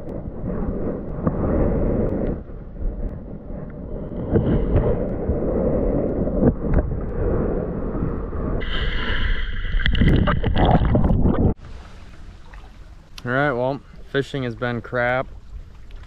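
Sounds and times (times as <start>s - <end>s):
underwater rumbling wash: 0.0s - 16.0s.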